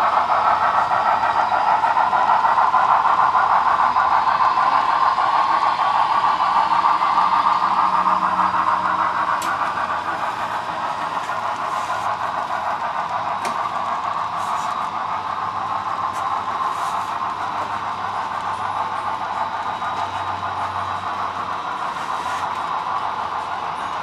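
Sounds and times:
model train rolling on track: 0.0 - 24.0.

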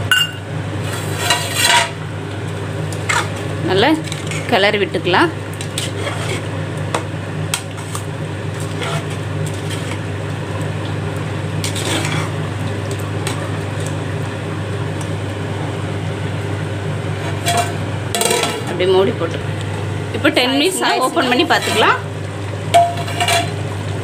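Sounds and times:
steady low hum: 0.0 - 24.0
metal ladle scraping a pot: 0.8 - 2.0, 5.7 - 6.5, 8.6 - 10.0, 11.6 - 12.4, 21.2 - 22.0, 22.8 - 23.6.

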